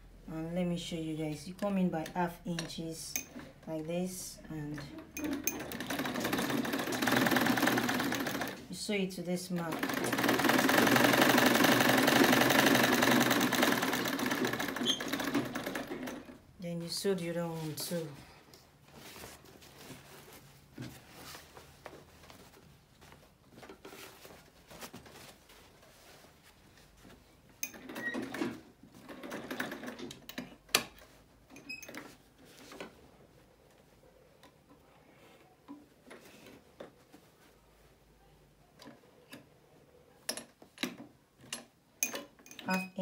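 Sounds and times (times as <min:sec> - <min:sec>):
sewing machine stitching: 0:04.7 - 0:08.7, 0:09.6 - 0:16.4, 0:27.6 - 0:32.1.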